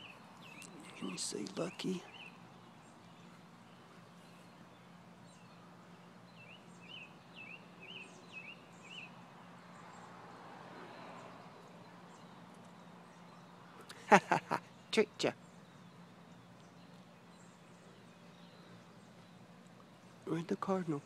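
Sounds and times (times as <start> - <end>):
bird singing whistled notes: 0.0 - 3.3, 6.3 - 9.7.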